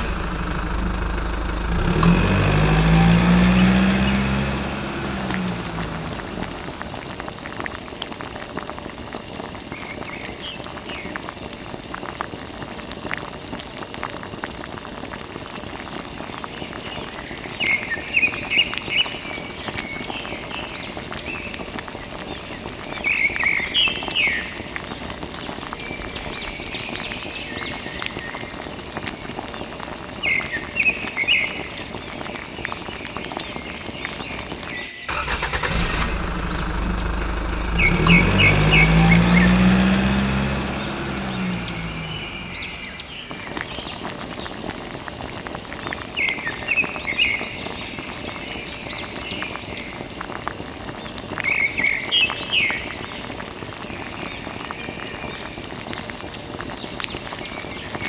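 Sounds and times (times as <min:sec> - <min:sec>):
water splashing onto sand: 0:00.0 - 0:10.3, 0:20.7 - 0:47.6.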